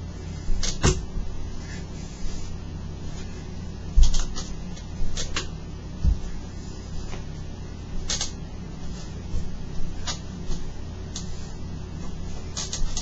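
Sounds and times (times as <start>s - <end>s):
steady low hum: 0.0s - 13.0s
swivel chair clicks and creaks: 0.6s - 1.0s, 4.0s - 5.5s, 8.0s - 8.4s, 10.0s - 11.4s, 12.4s - 13.0s.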